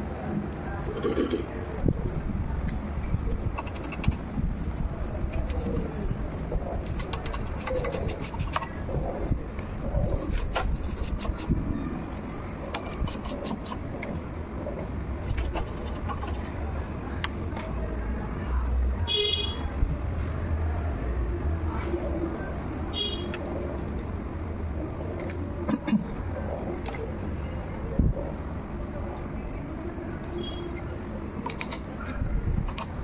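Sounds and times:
road traffic rumble: 0.0s - 33.0s
vehicle horn toot: 19.1s - 19.7s.

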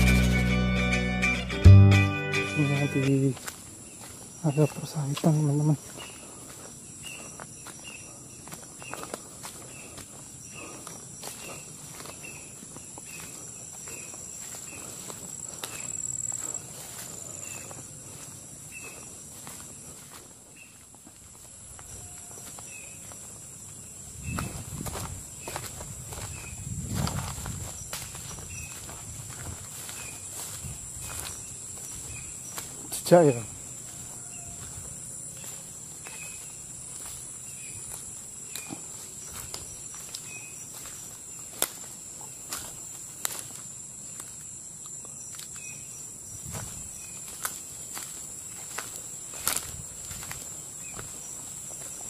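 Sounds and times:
footsteps through grass: 0.0s - 52.0s
high-pitched insect drone: 2.3s - 20.8s, 21.7s - 52.0s
leaves and twigs snapping: 38.5s - 40.9s, 41.5s - 41.9s.

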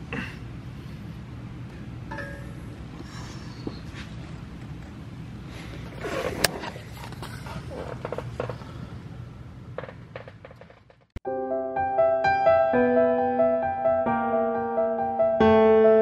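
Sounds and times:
steady low hum: 0.0s - 11.1s.

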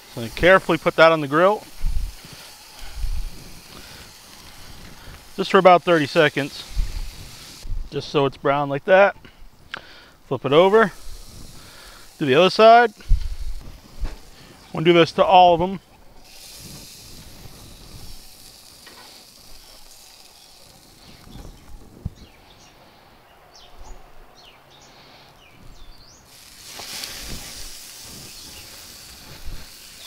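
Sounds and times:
food sizzling on grill: 0.0s - 22.4s, 25.7s - 30.0s
flames flaring up hissing: 0.0s - 23.9s, 24.7s - 30.0s
bird chirps: 19.5s - 26.3s.

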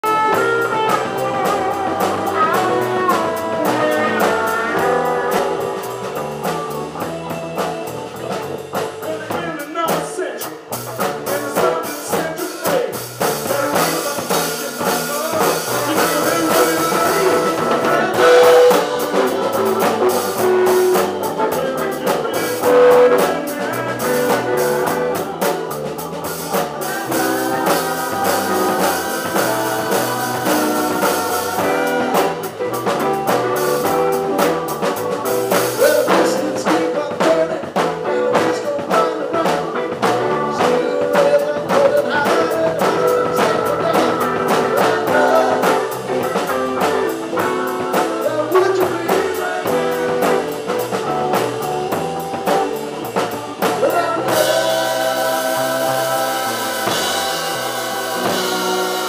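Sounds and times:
drum kit beat: 0.0s - 59.0s
electric guitar: 0.0s - 59.0s
person singing: 0.0s - 59.0s.

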